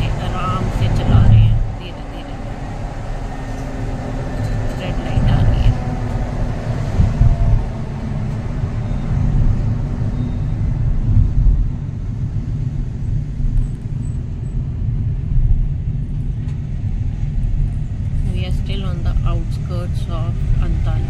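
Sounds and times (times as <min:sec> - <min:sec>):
car driving rumble: 0:00.0 - 0:21.0.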